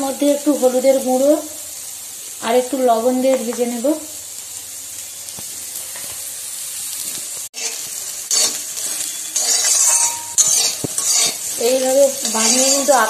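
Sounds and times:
food sizzling in oil: 0:00.0 - 0:13.0
metal spatula scraping pan: 0:07.6 - 0:13.0.

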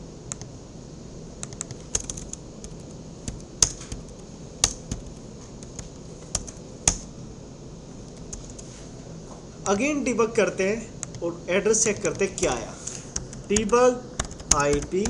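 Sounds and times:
computer keyboard typing: 0:01.4 - 0:07.1, 0:08.2 - 0:08.6, 0:11.0 - 0:15.0.

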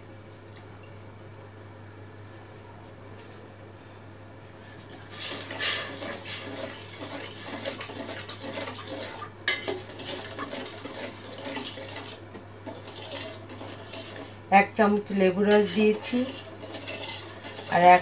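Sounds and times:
spoon scraping metal pot: 0:04.9 - 0:14.4, 0:15.3 - 0:18.0.

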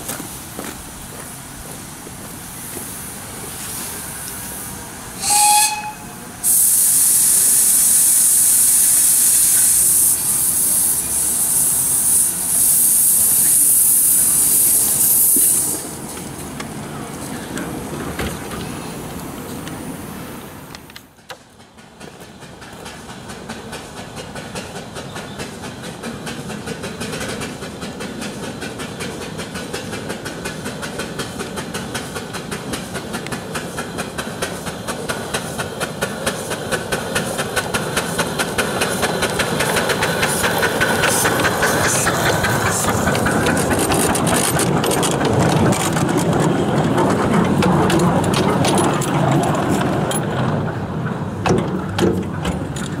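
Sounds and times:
steam locomotive exhaust beats: 0:00.0 - 0:19.9, 0:20.5 - 0:53.0
steam hiss: 0:00.0 - 0:21.1, 0:21.9 - 0:44.8
wheel clatter: 0:37.2 - 0:53.0.

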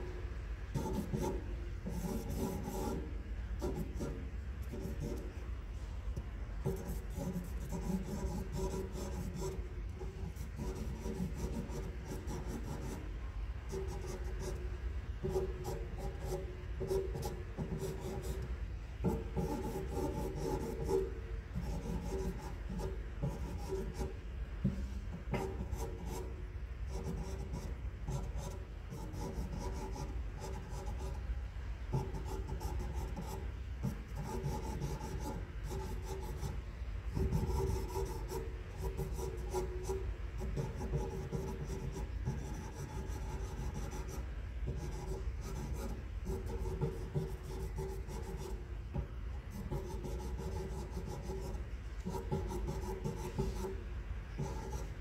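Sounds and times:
pencil scratching on paper: 0:00.8 - 0:03.0, 0:06.6 - 0:13.0, 0:19.1 - 0:21.0, 0:21.6 - 0:24.1, 0:26.9 - 0:31.2, 0:31.9 - 0:33.4, 0:34.1 - 0:48.6, 0:49.5 - 0:53.8, 0:54.4 - 0:55.0.

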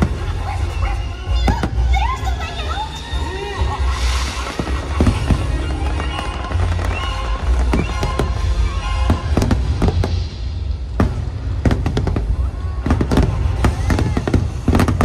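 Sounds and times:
deep rumble: 0:00.0 - 0:15.0
show music: 0:00.0 - 0:15.0.

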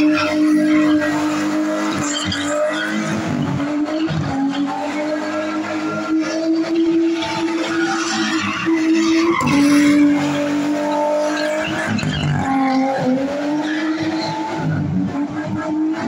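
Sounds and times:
car engine revving: 0:00.0 - 0:16.0.

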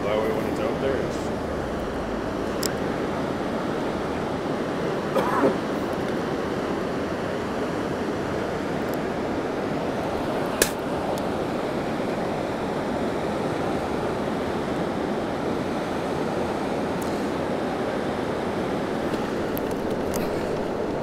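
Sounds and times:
fast-flowing river rushing: 0:00.0 - 0:21.0
sharp click: 0:10.6 - 0:10.8.

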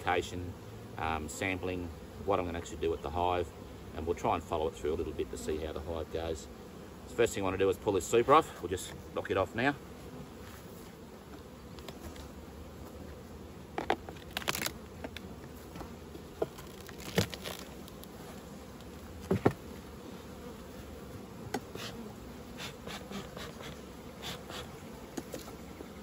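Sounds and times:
honeybees buzzing: 0:00.0 - 0:26.0
wooden box knocks and clunks: 0:19.2 - 0:19.6.

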